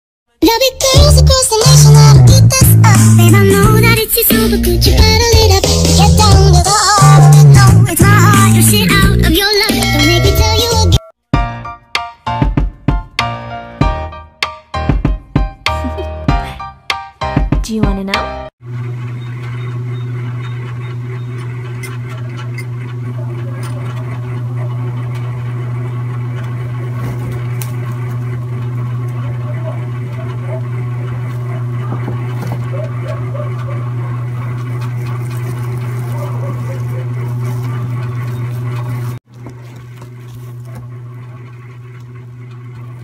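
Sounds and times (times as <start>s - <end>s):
steady low hum: 18.6s - 43.0s.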